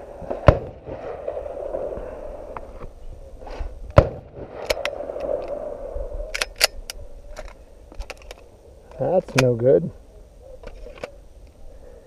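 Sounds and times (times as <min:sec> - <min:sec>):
pistol clicks: 0:06.4 - 0:08.4.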